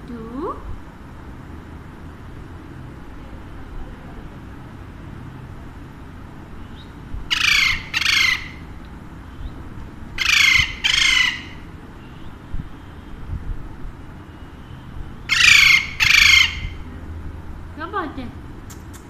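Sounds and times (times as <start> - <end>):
parakeet squawking: 6.8 - 8.7, 10.2 - 11.8, 15.2 - 16.9.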